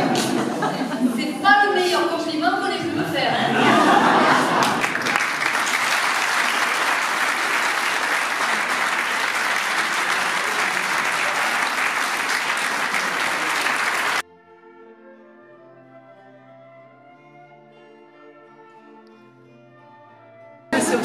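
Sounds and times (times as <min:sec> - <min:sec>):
audience applauding: 0:03.7 - 0:14.2
faint orchestral music: 0:12.0 - 0:21.0.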